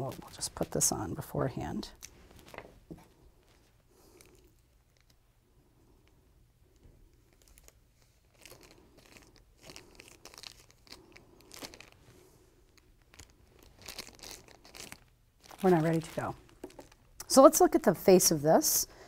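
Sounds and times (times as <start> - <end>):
thin plastic sleeve crinkling: 0.0 - 1.0, 1.9 - 5.3, 7.1 - 17.9.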